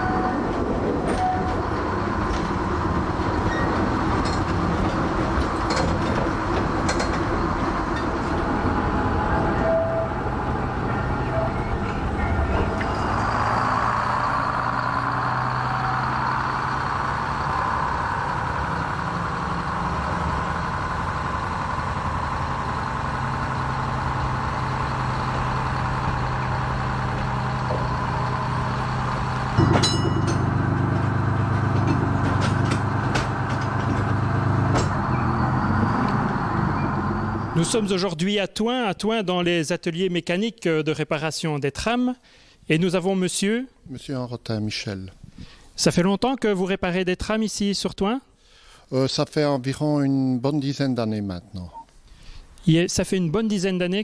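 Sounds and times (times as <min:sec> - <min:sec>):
electric tram motor hum: 0:00.0 - 0:37.9
wheel-on-rail rumble: 0:00.0 - 0:37.9
clicks from tram: 0:03.7 - 0:07.4, 0:29.6 - 0:35.0.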